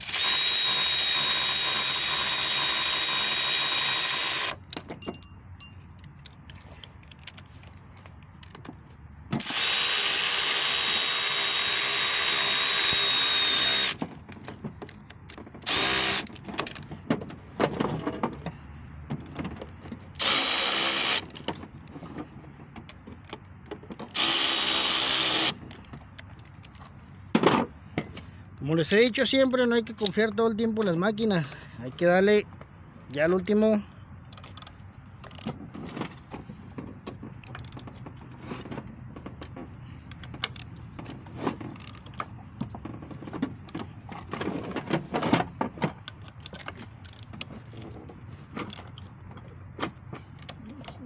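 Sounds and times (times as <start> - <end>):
cordless power tool spinning: 0.0 - 4.6, 9.4 - 14.0, 15.6 - 16.4, 20.2 - 21.4, 24.1 - 25.6.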